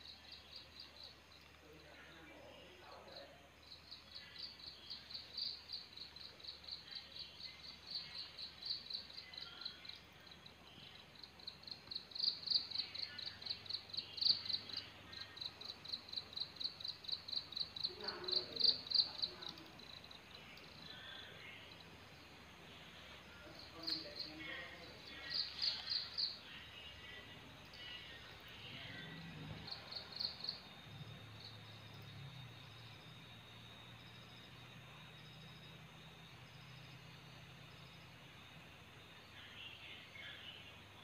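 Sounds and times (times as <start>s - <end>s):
cricket chirping: 0.0s - 41.0s.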